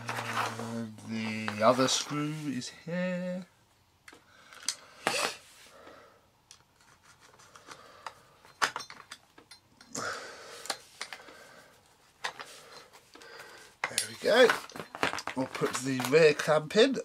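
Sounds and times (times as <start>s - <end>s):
metal parts scraping and rubbing: 0.0s - 2.7s, 6.6s - 9.6s, 10.6s - 16.6s.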